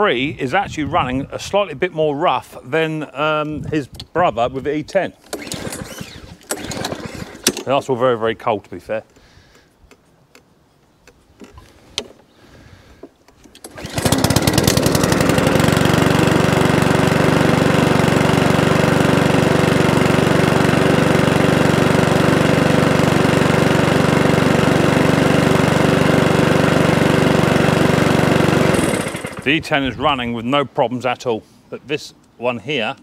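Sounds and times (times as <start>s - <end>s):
lawnmower pull-start: 5.1s - 7.9s, 13.0s - 29.9s
lawnmower engine running: 5.2s - 7.8s, 13.4s - 30.2s.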